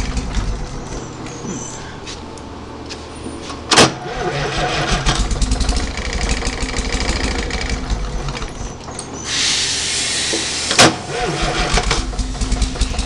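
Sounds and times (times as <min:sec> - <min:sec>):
diesel engine clattering: 0:00.0 - 0:01.8, 0:03.7 - 0:09.2, 0:10.4 - 0:13.0
steady hiss: 0:09.3 - 0:10.8.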